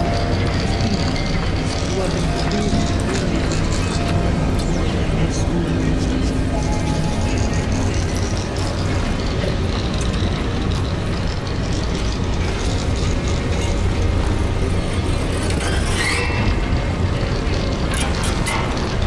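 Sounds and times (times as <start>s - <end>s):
dark ambient electronic drone: 0.0s - 19.0s.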